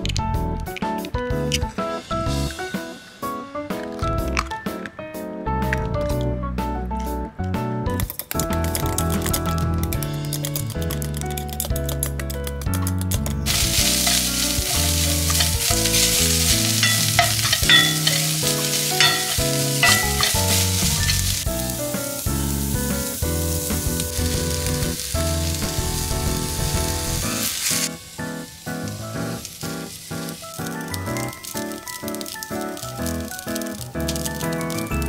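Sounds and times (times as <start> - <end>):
background music: 0.0 - 35.0
carrots sizzling in frying pan: 13.4 - 35.0
spatula scraping pan: 13.5 - 21.4.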